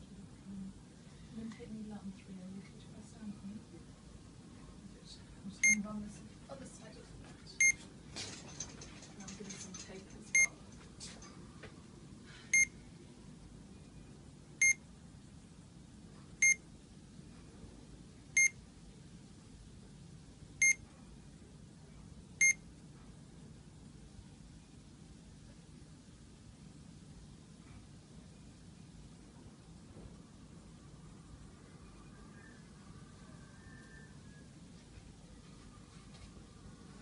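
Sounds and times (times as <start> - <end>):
infusion pump short high beeps: 12.5 - 12.7.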